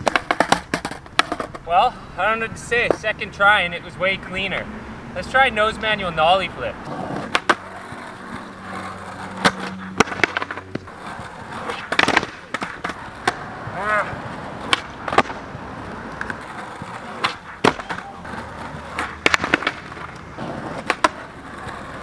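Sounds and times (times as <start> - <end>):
skateboard wooden clacks: 0.0 - 1.7, 6.9 - 22.0
skateboard rolling on concrete: 0.0 - 22.0.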